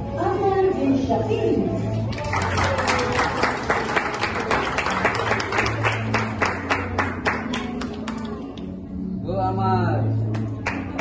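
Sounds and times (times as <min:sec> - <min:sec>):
audience clapping: 0:02.1 - 0:08.8, 0:10.3 - 0:11.0.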